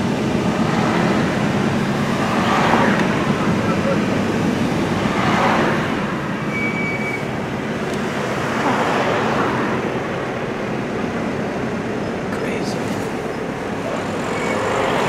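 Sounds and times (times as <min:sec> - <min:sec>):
car road noise: 0:00.0 - 0:15.0
brief high tone: 0:06.5 - 0:07.3.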